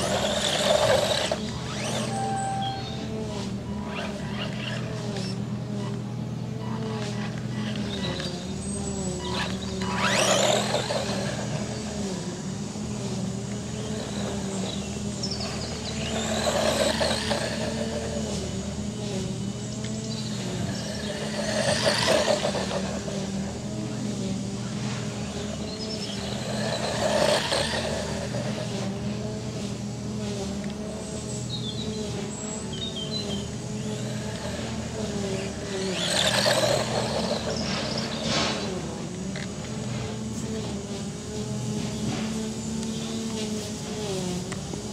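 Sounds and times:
toy car rushing over dirt: 0:00.0 - 0:06.1, 0:06.8 - 0:44.9
electric motor of rc buggy: 0:00.0 - 0:44.9
faint bird chirps: 0:00.2 - 0:06.0.

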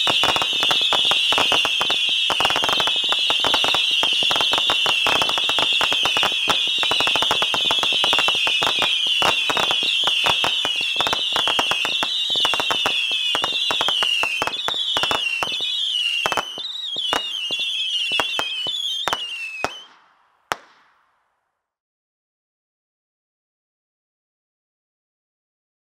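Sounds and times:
shrill wavering whistle: 0:00.0 - 0:19.9.

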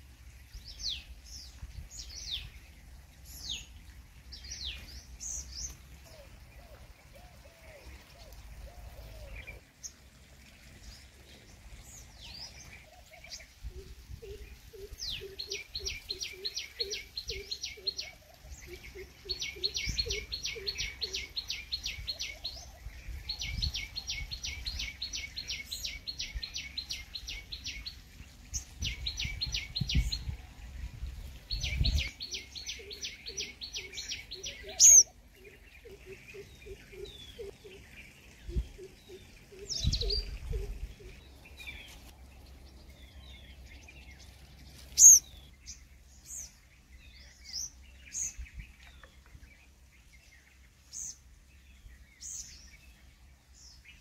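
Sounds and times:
bird chirps: 0:31.5 - 0:53.0
sharp bird calls: 0:31.6 - 0:42.0, 0:44.8 - 0:45.5.

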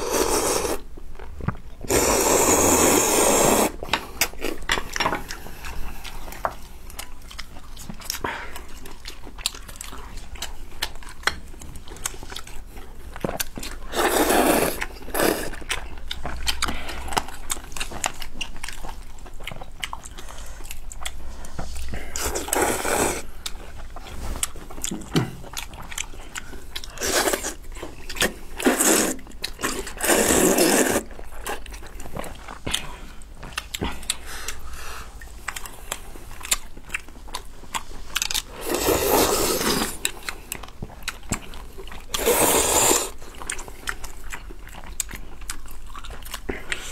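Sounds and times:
loud noodle slurps: 0:00.0 - 0:00.8, 0:01.9 - 0:03.9, 0:13.9 - 0:15.5, 0:22.2 - 0:23.3, 0:27.0 - 0:27.6, 0:28.6 - 0:31.1, 0:38.5 - 0:40.0, 0:42.2 - 0:43.2
chewing and lip-smacking: 0:00.0 - 0:03.0, 0:03.8 - 0:46.9.

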